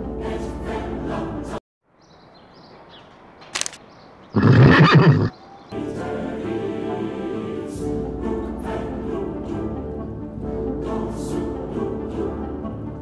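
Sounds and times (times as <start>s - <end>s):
choral orchestral music: 0.0s - 1.6s, 5.7s - 13.0s
sharp click: 3.4s - 3.8s
horse neighing: 4.4s - 5.4s.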